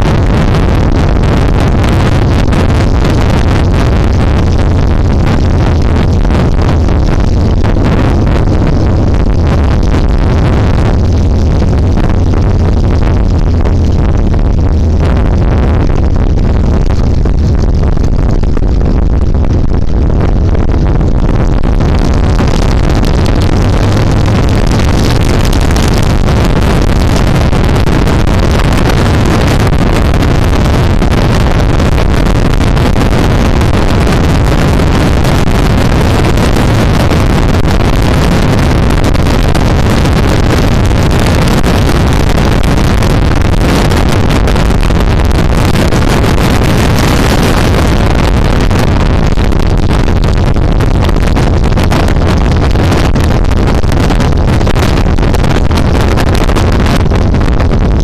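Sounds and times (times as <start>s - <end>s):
motorcycle engine running: 0.0s - 18.1s, 18.7s - 27.4s
wind rushing over microphone: 0.0s - 58.0s.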